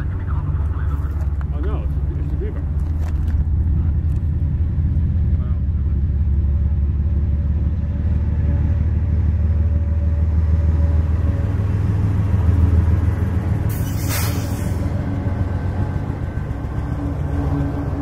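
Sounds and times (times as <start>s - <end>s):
diesel locomotive engine rumble: 0.0s - 18.0s
burst of hiss: 13.7s - 14.8s.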